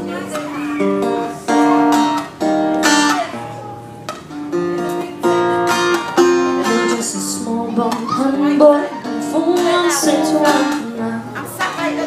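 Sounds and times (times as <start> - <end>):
acoustic guitar strummed chords: 0.0 - 12.0.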